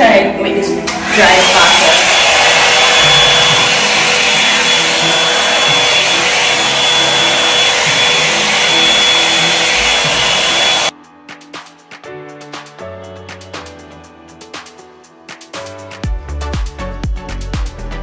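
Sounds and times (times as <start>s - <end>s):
hair dryer blowing air: 0.8s - 11.0s.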